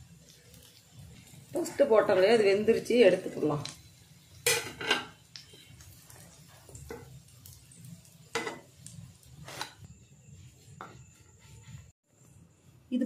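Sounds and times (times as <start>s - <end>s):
oil sizzling: 0.0s - 12.9s
spatula scraping a frying pan: 9.3s - 12.0s.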